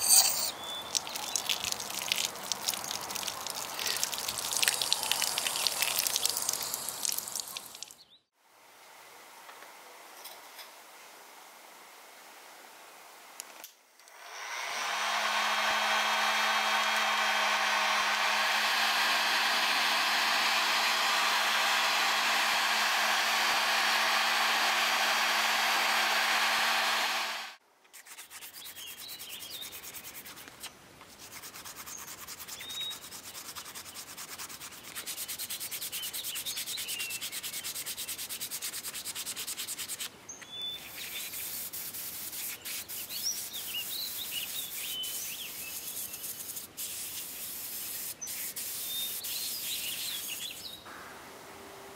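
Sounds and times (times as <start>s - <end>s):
faint birdsong: 0.5s - 1.6s, 28.4s - 30.3s, 31.8s - 38.4s, 40.2s - 41.7s, 42.4s - 46.5s, 47.3s - 51.3s
heat gun blowing: 14.0s - 27.6s
sandpaper rubbing on blade: 27.9s - 40.1s, 41.0s - 50.4s.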